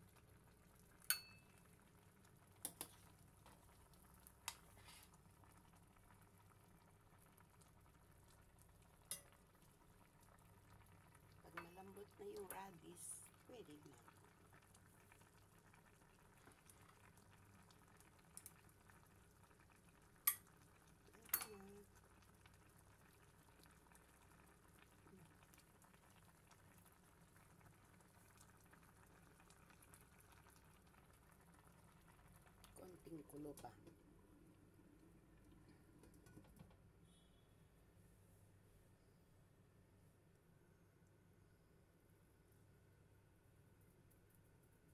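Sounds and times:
faint broth simmering in metal pot: 0.0 - 44.9
metal ladle clinking against pot: 21.2 - 21.6.

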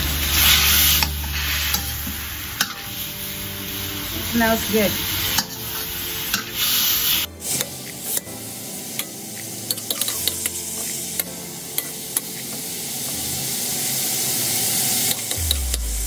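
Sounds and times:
metal ladle scraping a wok: 0.0 - 4.3
meat sizzling in oil: 0.0 - 15.4.

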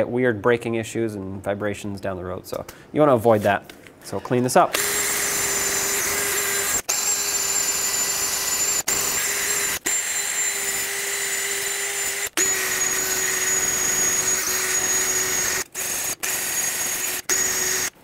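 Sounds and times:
drill motor whine: 4.8 - 18.0.

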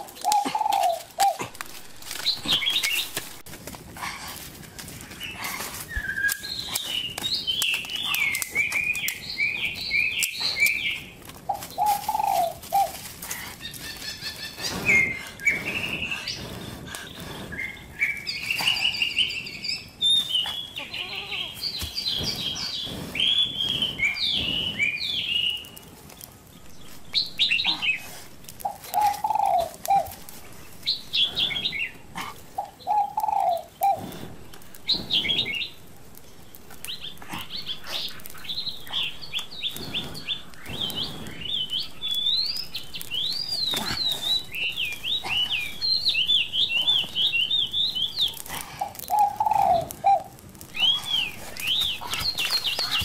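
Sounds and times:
songbirds chirping: 0.0 - 53.0
short low bird calls: 26.9 - 35.8, 36.9 - 53.0.

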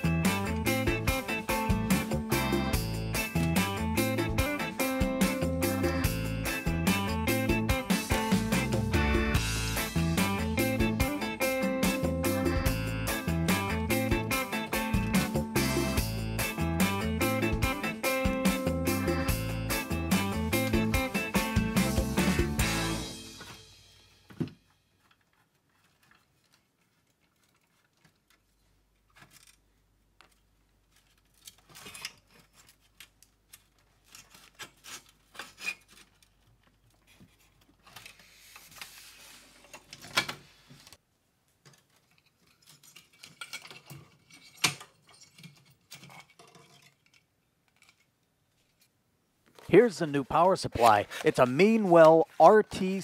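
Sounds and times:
metal parts clicking and rattling: 29.0 - 37.0, 41.6 - 48.9.

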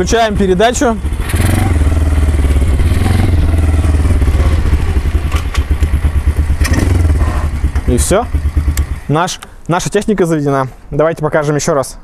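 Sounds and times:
small engine running steadily: 0.3 - 9.0.

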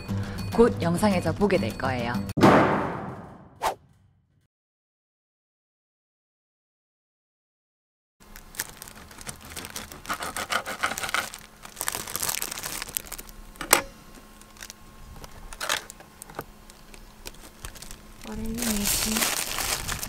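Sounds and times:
sharp knock: 2.4 - 3.9
plastic bag crinkling: 8.2 - 13.6, 14.4 - 20.0.

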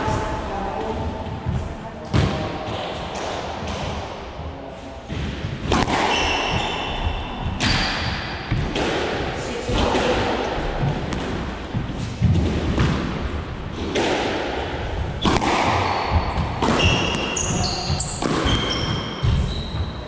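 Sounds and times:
squash ball smacking: 5.1 - 19.5
shoes squeaking on wooden floor: 16.8 - 20.0.

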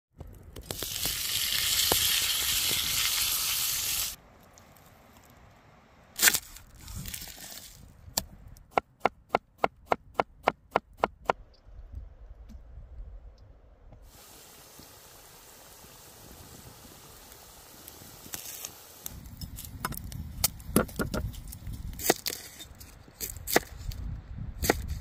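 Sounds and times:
steak sizzling in oil: 0.7 - 4.2, 14.1 - 19.1.

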